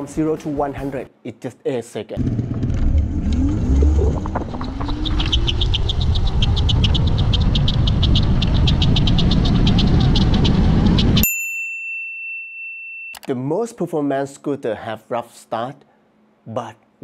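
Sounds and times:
electric motor whine: 2.2s - 8.2s
wind rumble on microphone: 2.3s - 11.2s.

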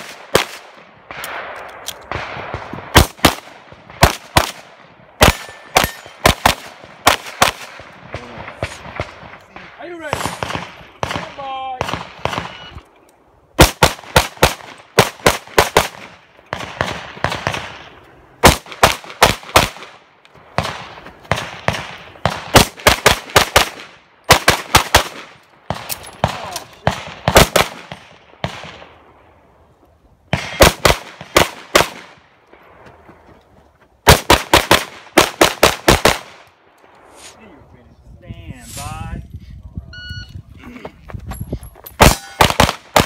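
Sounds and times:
pistol shots: 0.0s - 12.6s, 13.6s - 20.0s, 20.6s - 28.9s, 30.3s - 32.2s, 34.0s - 36.4s, 42.0s - 43.0s.

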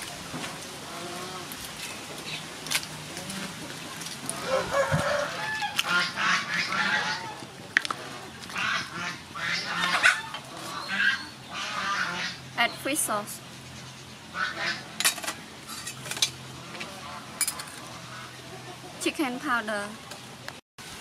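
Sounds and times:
fowl calling: 4.3s - 7.5s, 8.5s - 12.4s, 14.3s - 15.0s.

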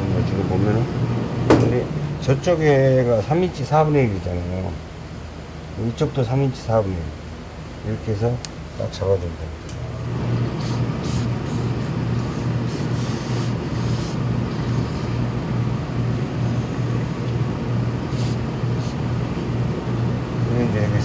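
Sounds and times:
low machine hum: 0.0s - 21.0s
steam iron hissing: 10.5s - 15.2s, 18.0s - 19.0s.

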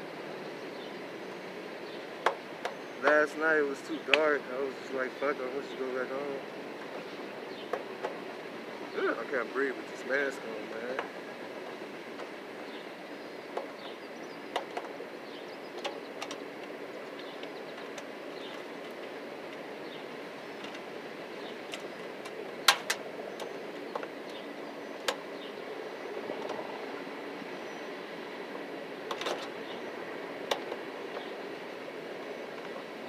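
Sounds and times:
steady background hum: 0.0s - 33.0s.

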